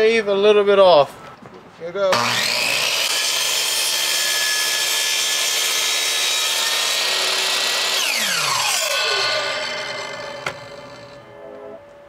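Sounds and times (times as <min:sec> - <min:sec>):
saw blade spinning down: 0:02.1 - 0:11.4
electric miter saw cutting wood: 0:02.1 - 0:12.0.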